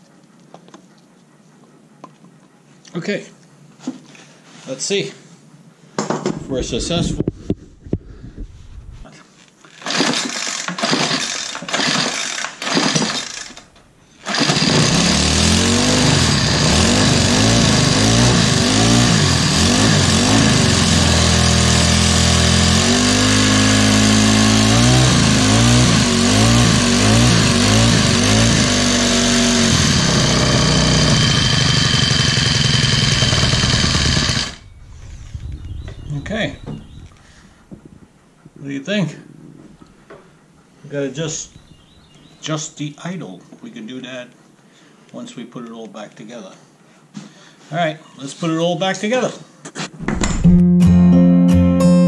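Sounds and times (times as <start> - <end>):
string trimmer engine: 9.8 - 34.7.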